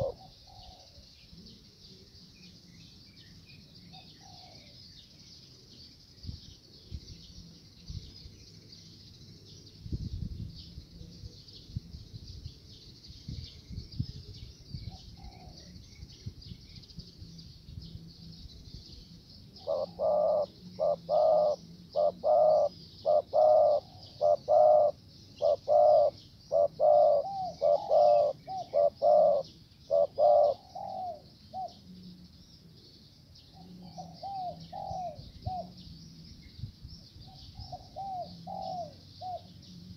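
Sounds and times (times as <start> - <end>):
dove cooing: 0.0 - 1.6, 3.9 - 4.8, 14.9 - 15.8, 19.5 - 32.0, 33.5 - 35.8, 37.3 - 39.9.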